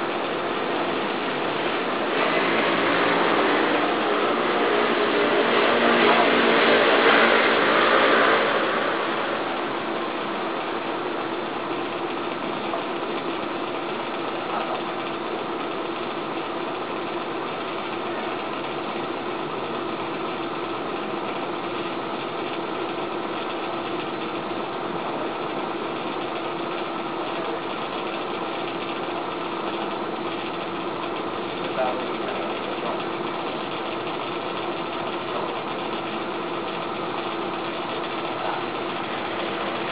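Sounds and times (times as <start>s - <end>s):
even rushing noise: 0.0s - 12.5s, 38.2s - 39.9s
steady machine hum: 0.0s - 39.9s.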